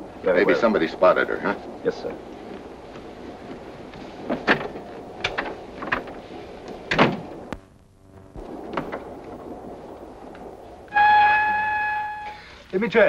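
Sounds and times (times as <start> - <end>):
door banging shut: 6.9 - 7.3.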